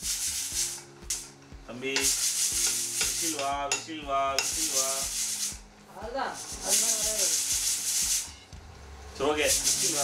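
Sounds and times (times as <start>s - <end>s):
pressure cooker steam hissing: 0.0s - 1.2s, 2.0s - 3.8s, 4.4s - 5.6s, 6.4s - 8.3s, 9.2s - 10.0s.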